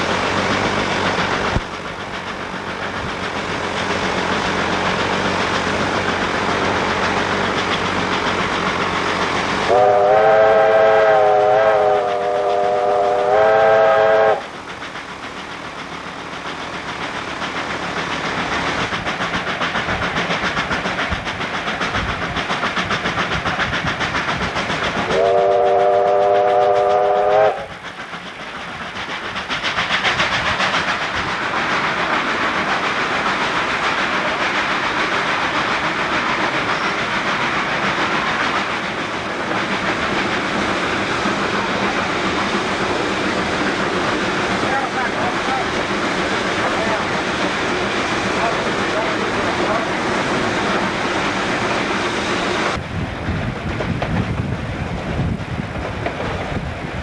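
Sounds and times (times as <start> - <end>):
steam locomotive running: 0.0 - 57.0
steam whistle blasts: 9.7 - 14.5, 25.1 - 27.7.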